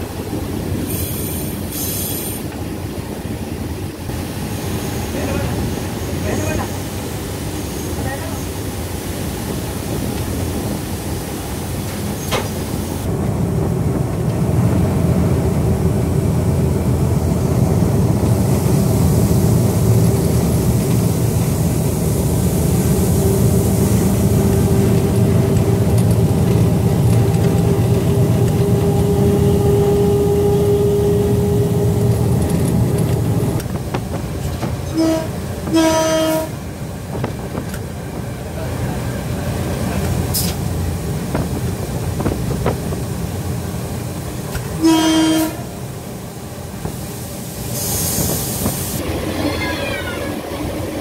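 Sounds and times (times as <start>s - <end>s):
diesel locomotive engine rumbling: 0.0s - 51.0s
locomotive horn toots: 34.9s - 36.6s, 44.8s - 45.7s.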